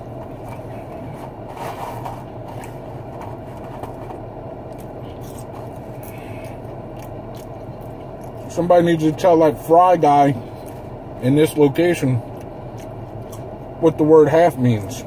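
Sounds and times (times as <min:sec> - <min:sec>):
car engine idling: 0:00.0 - 0:15.0
food packaging rustling: 0:00.2 - 0:06.0.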